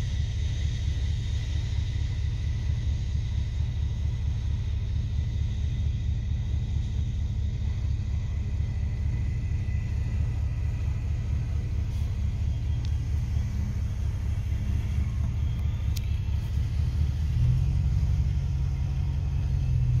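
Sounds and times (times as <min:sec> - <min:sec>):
car engine rumble: 0:00.0 - 0:20.0.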